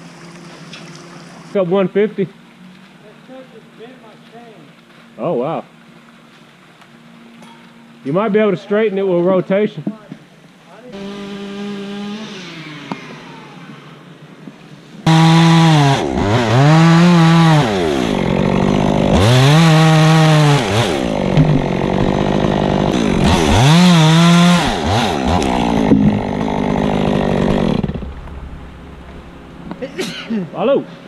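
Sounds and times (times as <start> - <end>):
chainsaw cutting wood: 11.0 - 14.0, 15.0 - 29.9.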